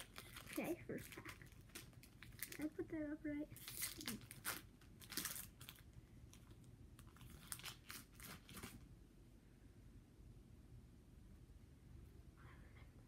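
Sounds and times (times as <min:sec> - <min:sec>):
foil wrapper crinkling and tearing: 0:00.0 - 0:02.8, 0:03.5 - 0:08.8.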